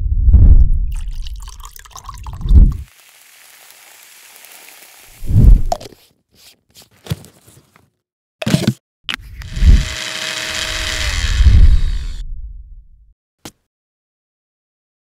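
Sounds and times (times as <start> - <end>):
seeds pouring hiss: 2.8 - 5.7
bag rustling: 6.0 - 7.9.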